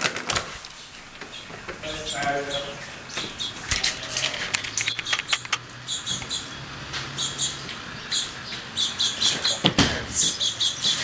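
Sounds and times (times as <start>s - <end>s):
small bird chirping: 1.3s - 9.6s, 10.2s - 11.0s
sharp clicks: 3.1s - 6.4s.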